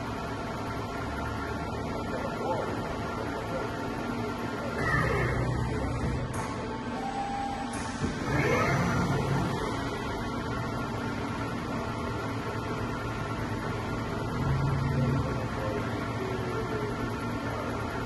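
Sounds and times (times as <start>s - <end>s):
lathe electrical hum: 0.0s - 18.0s
servo whine: 4.7s - 10.9s.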